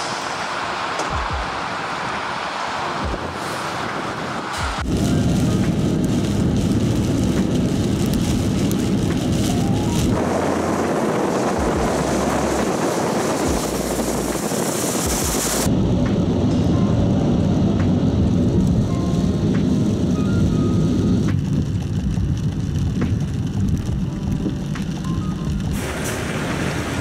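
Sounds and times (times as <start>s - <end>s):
tyres rushing through water: 0.0s - 5.5s, 25.7s - 27.0s
truck engine rumble: 0.0s - 27.0s.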